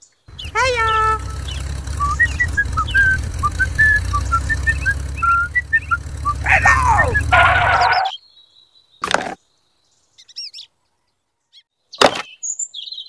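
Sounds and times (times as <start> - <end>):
low engine rumble: 0.3 - 8.1
high whistled notes: 0.4 - 8.1.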